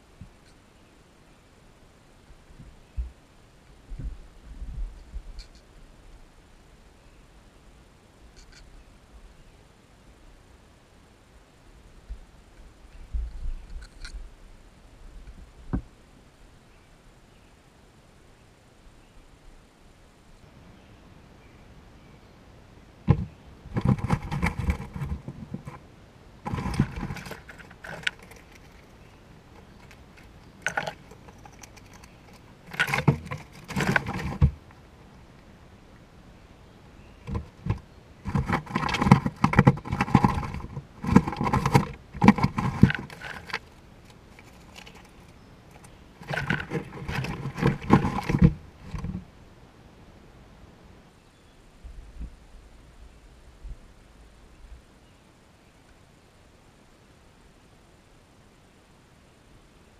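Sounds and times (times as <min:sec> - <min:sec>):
peanuts rattling in wooden box: 0:26.5 - 0:34.6, 0:38.3 - 0:49.0.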